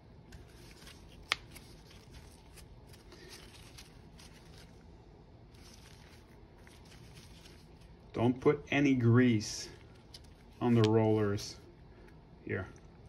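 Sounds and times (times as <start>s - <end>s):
gloved hands rustling: 0.2s - 4.9s, 5.5s - 8.2s, 9.4s - 11.4s.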